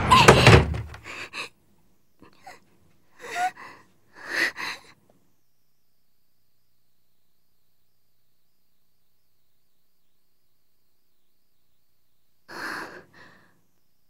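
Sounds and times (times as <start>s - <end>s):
girl gasping breaths: 3.2s - 5.0s.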